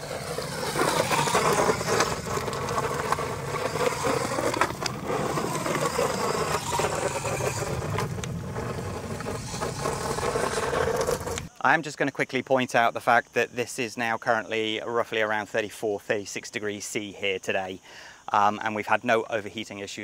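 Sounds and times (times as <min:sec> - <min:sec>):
electric motor whining: 0:00.0 - 0:11.5
tyres crunching on gravel: 0:00.0 - 0:11.5.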